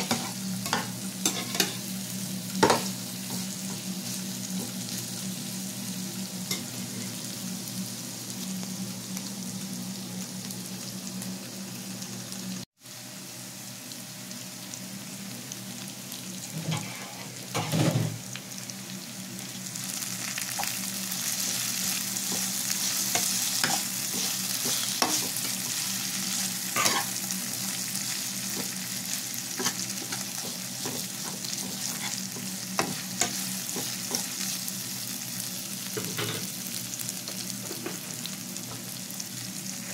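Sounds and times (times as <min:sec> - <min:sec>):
vegetables sizzling in a pan: 0:00.0 - 0:39.9
metal spatula scraping a pan: 0:16.6 - 0:17.7, 0:26.8 - 0:27.2, 0:31.6 - 0:33.4.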